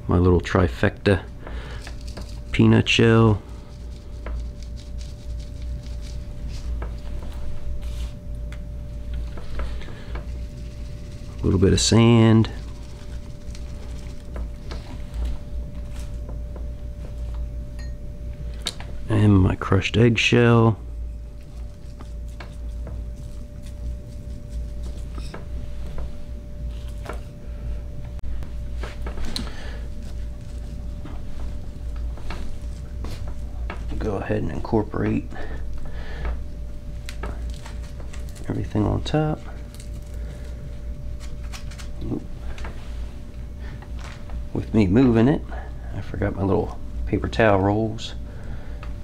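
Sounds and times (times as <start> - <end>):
steady low hum: 0.0 - 49.0
shells pattering on compost: 0.7 - 17.3
faint steady tone: 17.2 - 18.3.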